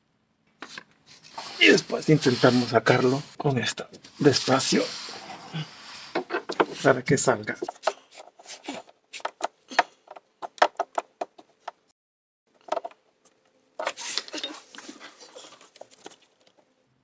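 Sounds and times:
plastic scraping rub: 0.6s - 11.6s
plastic clicks and knocks: 9.3s - 11.8s.

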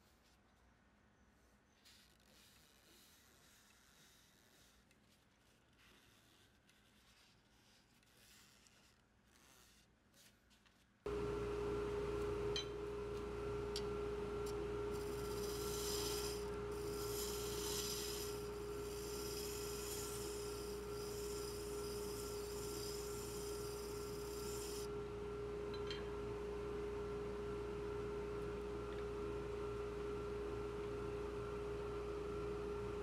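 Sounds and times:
wood lathe motor whine: 11.1s - 25.0s
tool hissing against spinning wood: 14.9s - 24.9s.

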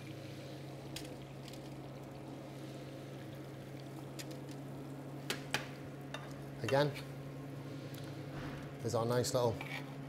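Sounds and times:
pans bubbling: 0.0s - 7.3s
low kitchen hum: 0.0s - 10.0s.

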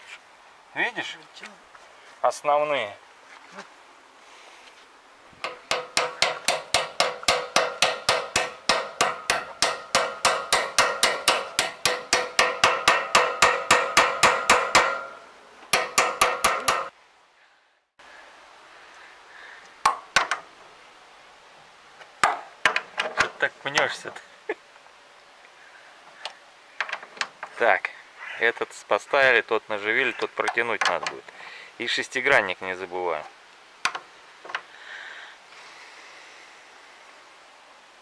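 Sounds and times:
hammer ringing on metal: 5.4s - 16.9s.

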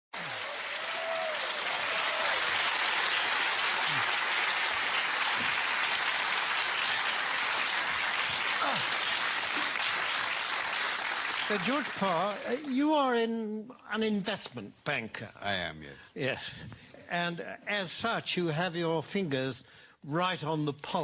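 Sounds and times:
audience applauding: 0.1s - 12.8s.

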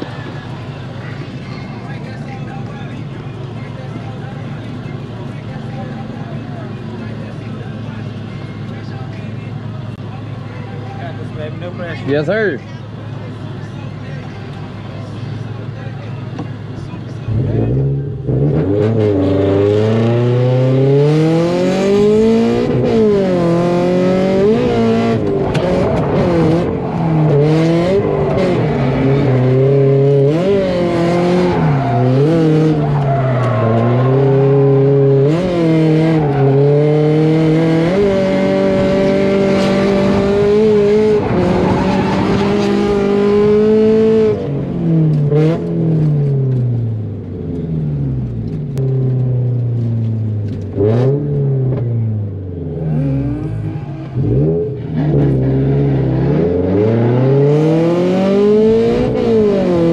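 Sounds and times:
car engine revving hard: 17.3s - 59.9s
tire squeal: 31.3s - 37.1s, 41.1s - 43.3s.

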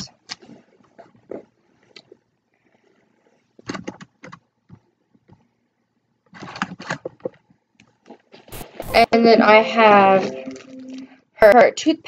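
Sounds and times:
clicks and rustles of items: 3.6s - 5.4s, 6.2s - 8.6s.

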